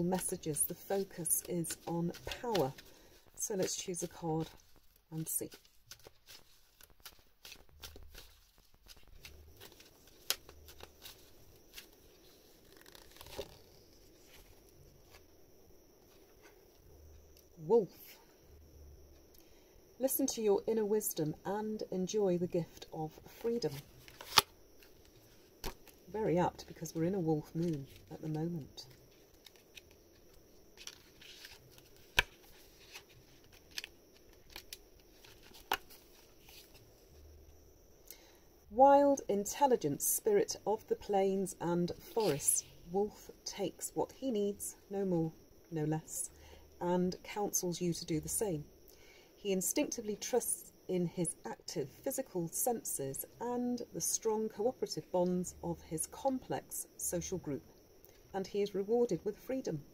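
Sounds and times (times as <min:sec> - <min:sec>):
paper rustling and pages turning: 0:00.0 - 0:15.3, 0:22.8 - 0:37.3, 0:41.9 - 0:42.6
cards shuffling: 0:00.1 - 0:15.2, 0:23.7 - 0:26.0, 0:29.1 - 0:36.8.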